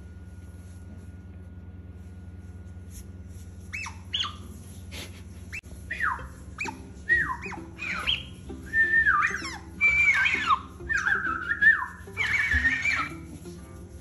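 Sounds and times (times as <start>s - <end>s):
toy whistling notes: 5.9s - 13.3s.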